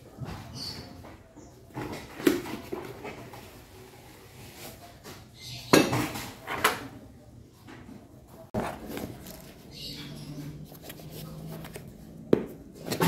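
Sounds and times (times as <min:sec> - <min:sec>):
soft handling noise: 0:07.5 - 0:13.0.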